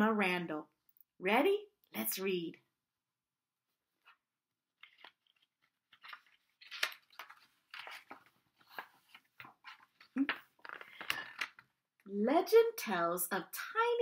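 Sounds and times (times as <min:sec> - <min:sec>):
book pages flipping: 0:04.0 - 0:11.8.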